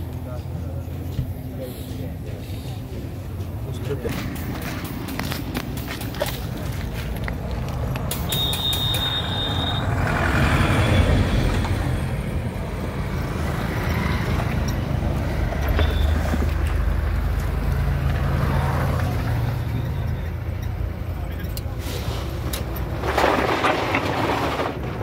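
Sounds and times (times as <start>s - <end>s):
high whistle: 8.2s - 10.0s.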